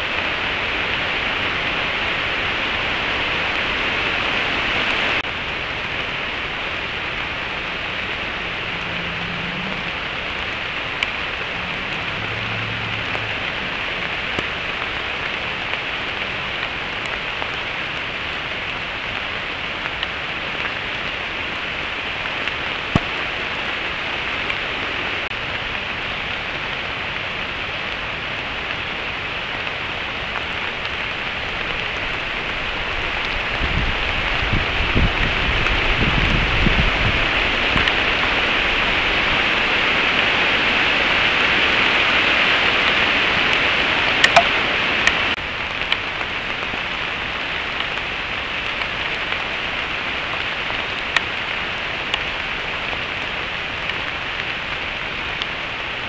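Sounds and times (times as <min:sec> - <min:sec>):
rain falling on woods: 0:00.0 - 0:56.0
low rumble: 0:05.3 - 0:15.7.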